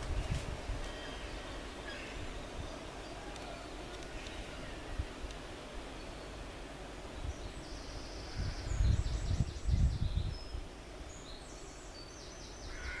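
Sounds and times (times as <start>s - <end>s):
small birds chirping: 0.0s - 13.0s
steady background hiss: 0.0s - 13.0s.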